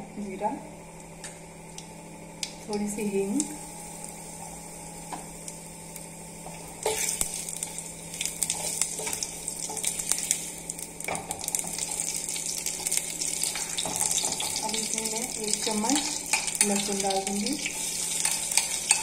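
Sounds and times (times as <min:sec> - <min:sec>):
seeds sizzling in hot oil: 0:02.4 - 0:19.0.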